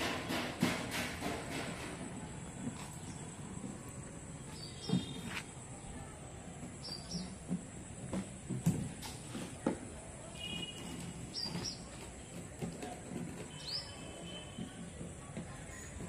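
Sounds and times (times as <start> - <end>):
birds chirping: 2.4 - 8.5, 10.3 - 14.9.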